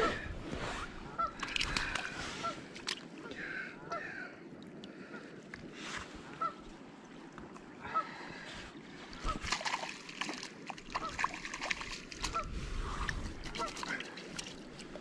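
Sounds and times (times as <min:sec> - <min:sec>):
water splashing: 0:00.0 - 0:15.0
bird honking: 0:01.1 - 0:01.4, 0:06.4 - 0:06.6.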